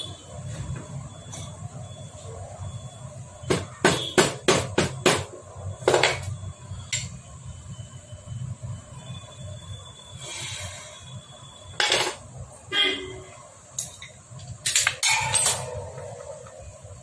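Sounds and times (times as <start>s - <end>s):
hammer tapping on metal engine: 3.5s - 5.3s.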